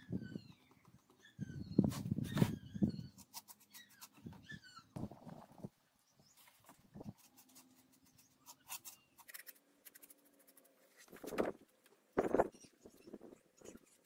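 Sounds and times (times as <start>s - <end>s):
paintbrush scratching: 6.4s - 11.5s.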